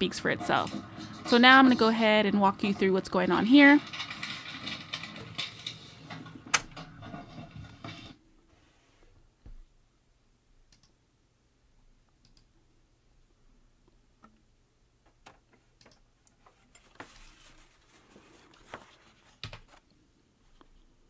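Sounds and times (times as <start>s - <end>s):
paper rustling: 16.4s - 19.9s.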